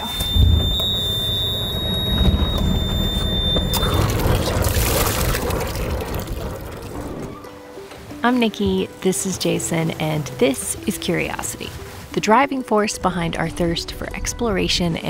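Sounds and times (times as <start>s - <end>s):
high alarm tone: 0.0s - 5.2s
water splashing from exhaust: 0.2s - 7.5s.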